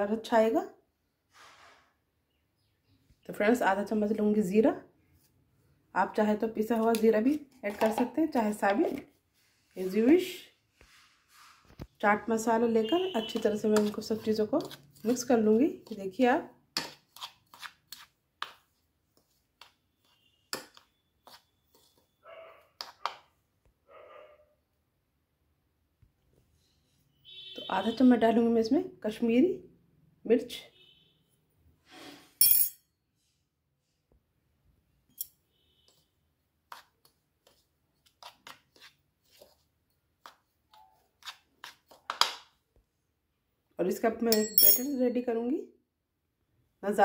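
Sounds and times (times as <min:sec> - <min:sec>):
spoon scraping dry mix: 0:06.6 - 0:10.0, 0:12.6 - 0:23.2, 0:35.8 - 0:42.6
spoon clinking against bowl: 0:44.3 - 0:45.0.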